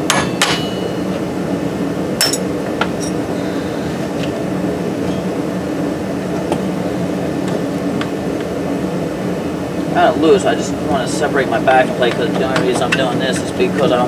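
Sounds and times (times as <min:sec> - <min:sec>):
steady background hum: 0:00.0 - 0:14.0
sharp metal clink: 0:00.1 - 0:01.1, 0:02.2 - 0:03.2.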